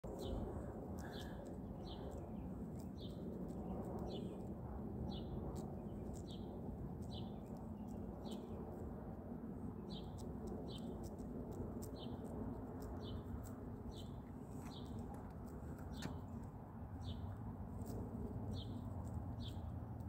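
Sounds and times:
small bird chirping: 0:00.1 - 0:08.8, 0:09.8 - 0:20.0.

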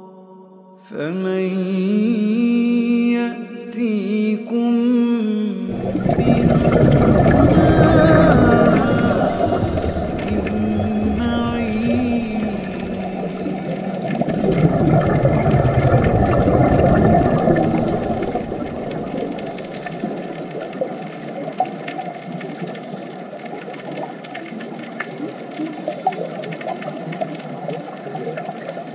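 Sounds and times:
underwater bubbling: 0:05.7 - 0:28.9
underwater crackling and popping: 0:05.7 - 0:28.9.

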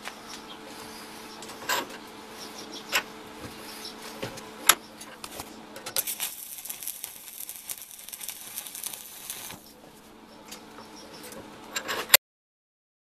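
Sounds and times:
welding arc crackling and hissing: 0:05.2 - 0:09.8.

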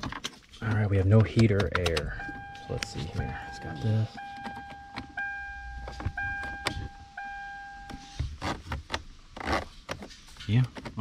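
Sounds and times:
car electronic warning chime: 0:02.0 - 0:08.2.

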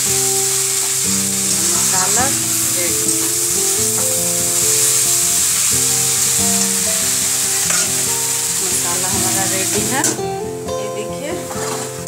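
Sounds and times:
background music: 0:00.0 - 0:12.0
vegetables sizzling in oil: 0:00.0 - 0:12.0
steel spatula stirring: 0:00.6 - 0:09.5.

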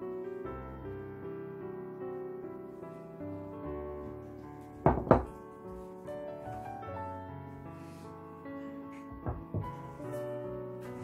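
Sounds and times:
soft piano music: 0:00.0 - 0:11.0
wooden cutting board knocks: 0:04.9 - 0:05.3, 0:09.1 - 0:09.8.

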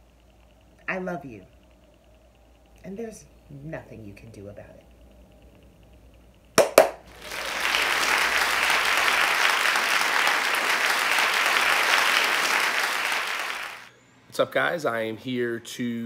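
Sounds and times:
crowd applause: 0:06.6 - 0:13.9.

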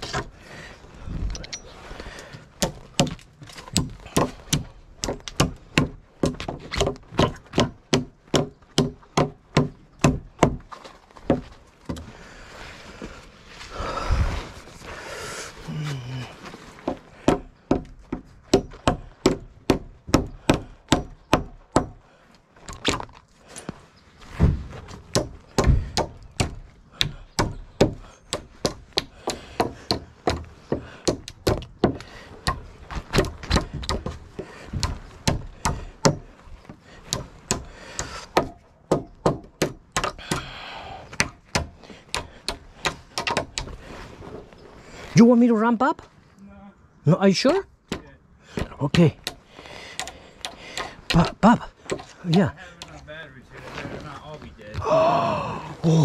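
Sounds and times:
hammer striking wood: 0:02.6 - 0:12.1, 0:16.8 - 0:22.0, 0:24.4 - 0:34.2, 0:34.8 - 0:36.3, 0:37.1 - 0:40.6, 0:41.2 - 0:43.7.

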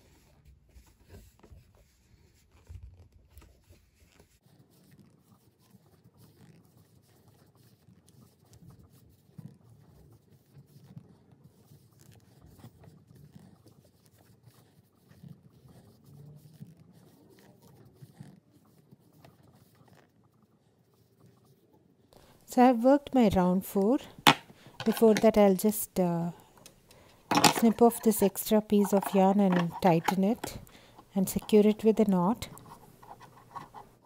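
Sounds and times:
soft handling noises: 0:00.1 - 0:34.0
crochet hook rustling yarn: 0:22.2 - 0:34.0.

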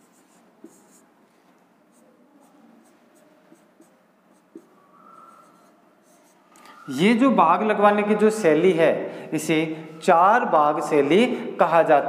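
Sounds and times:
marker squeaking on whiteboard: 0:00.0 - 0:01.0, 0:01.9 - 0:07.0.

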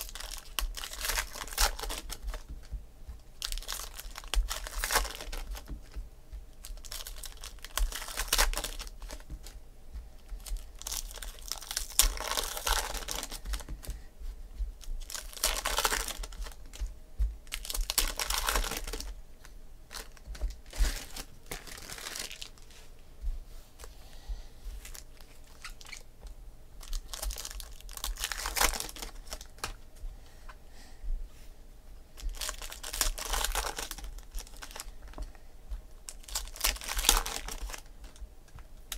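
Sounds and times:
foil wrappers tearing and crinkling: 0:00.0 - 0:02.5, 0:03.4 - 0:06.0, 0:06.6 - 0:09.3, 0:10.4 - 0:13.7, 0:15.0 - 0:19.1, 0:19.9 - 0:22.7, 0:24.8 - 0:26.1, 0:26.8 - 0:29.8, 0:32.2 - 0:35.2, 0:36.1 - 0:38.2.

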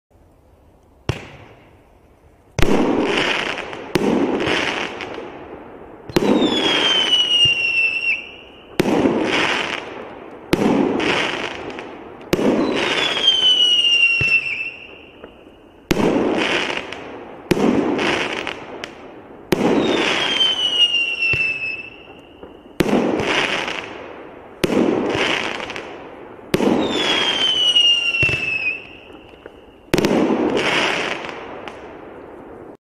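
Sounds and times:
falling firework whistle: 0:06.1 - 0:09.8, 0:12.4 - 0:16.8, 0:19.5 - 0:23.8, 0:26.6 - 0:31.3.

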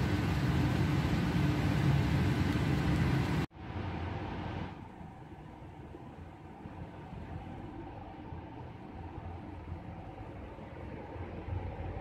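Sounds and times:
blower hiss: 0:00.0 - 0:03.5
ventilation machinery hum: 0:00.0 - 0:12.0.

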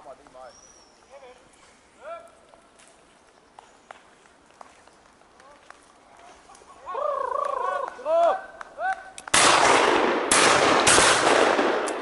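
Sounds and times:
shotgun shots with echo: 0:09.3 - 0:12.0.

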